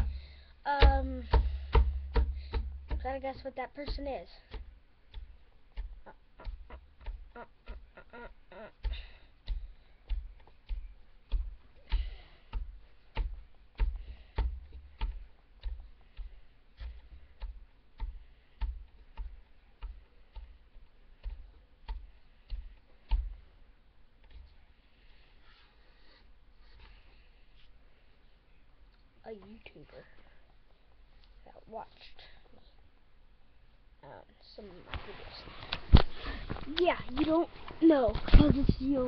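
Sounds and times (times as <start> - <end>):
rhythmic tapping: 0.0 - 23.6.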